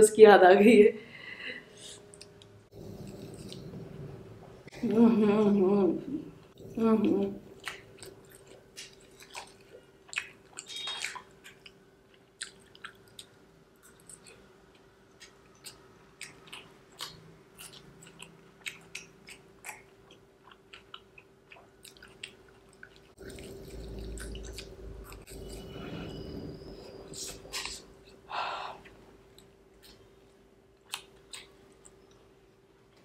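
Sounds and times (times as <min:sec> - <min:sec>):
faint steady hum: 0:00.0 - 0:33.0
person chewing: 0:02.1 - 0:03.9, 0:07.5 - 0:25.8, 0:28.8 - 0:32.3.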